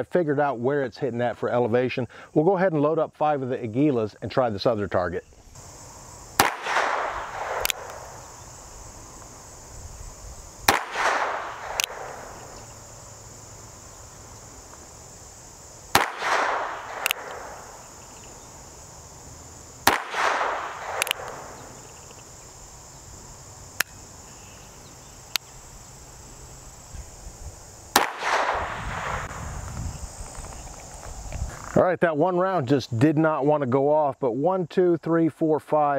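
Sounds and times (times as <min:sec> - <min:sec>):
revolver shots with echo: 0:06.4 - 0:08.1, 0:10.7 - 0:12.6, 0:16.0 - 0:17.7, 0:19.9 - 0:21.7, 0:28.0 - 0:29.3
light metallic clicks: 0:16.9 - 0:17.4, 0:20.9 - 0:21.4.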